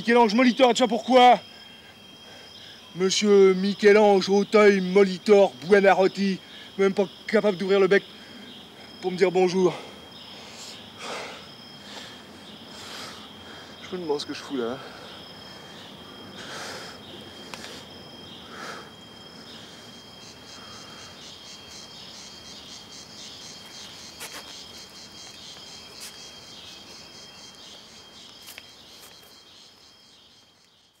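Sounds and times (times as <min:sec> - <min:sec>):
insects trilling: 0:00.0 - 0:31.0.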